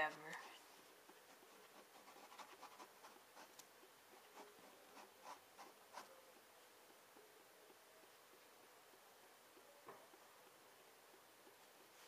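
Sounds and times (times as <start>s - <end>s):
pen scratching on paper: 0.0s - 6.2s.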